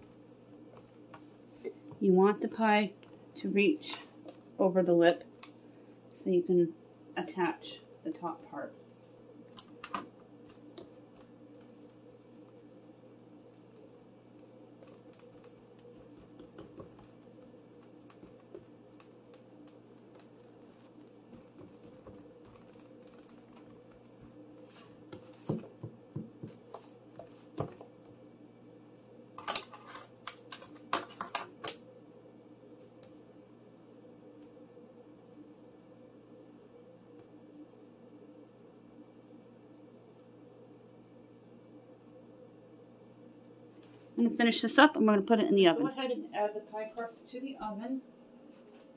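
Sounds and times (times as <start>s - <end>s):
steady low hum: 0.0s - 48.9s
hands crimping pie dough: 9.4s - 28.2s.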